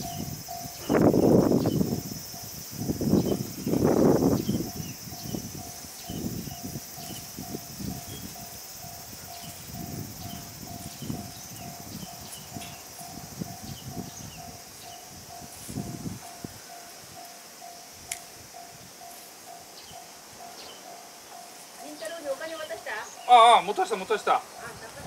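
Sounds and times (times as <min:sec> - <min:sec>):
high insect drone: 0:00.0 - 0:25.0
leafy plants rustling: 0:09.4 - 0:25.0.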